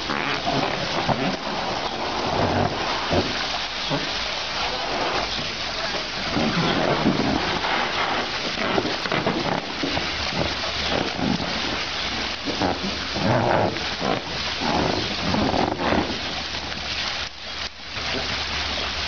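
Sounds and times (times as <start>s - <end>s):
water splashing in a pool: 0.0s - 19.0s.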